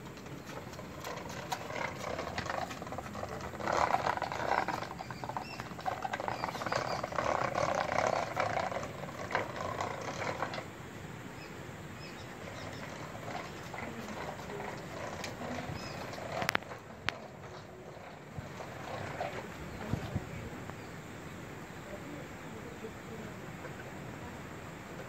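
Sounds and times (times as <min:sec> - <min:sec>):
toy wheels rattling over concrete: 0:00.0 - 0:10.8, 0:12.1 - 0:20.5.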